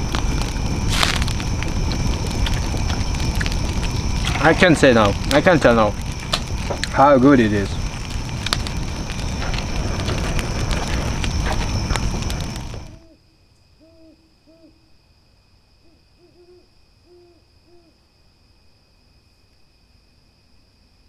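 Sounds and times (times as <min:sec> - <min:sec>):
campfire crackling and popping: 0:00.0 - 0:13.1
owl hooting: 0:12.9 - 0:14.9, 0:15.8 - 0:18.0.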